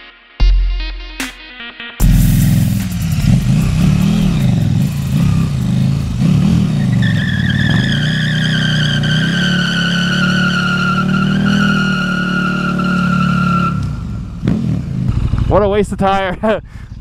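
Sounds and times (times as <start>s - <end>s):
motorcycle engine revving: 2.0s - 16.0s
tyre squealing on pavement: 5.8s - 14.4s.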